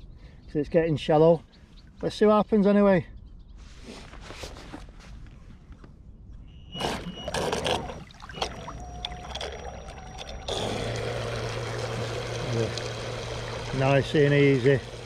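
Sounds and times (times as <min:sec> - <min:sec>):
model boat motor whine: 0:06.7 - 0:15.0
water splashes: 0:06.8 - 0:15.0
water spraying off hull: 0:06.8 - 0:15.0.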